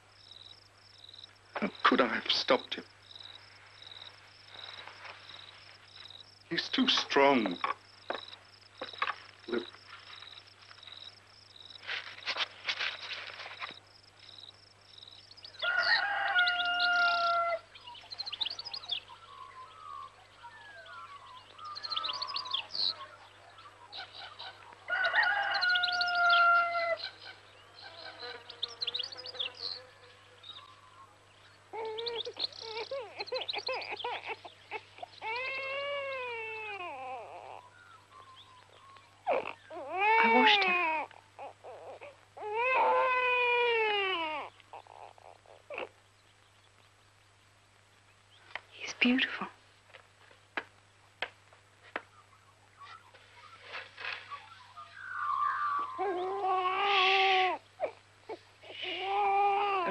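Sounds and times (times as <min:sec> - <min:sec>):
small birds chirping: 0:00.0 - 0:59.9
rooster crowing: 0:15.6 - 0:17.7, 0:24.9 - 0:27.1
newborn baby crying: 0:31.7 - 0:37.8, 0:39.2 - 0:46.0, 0:55.7 - 0:59.9.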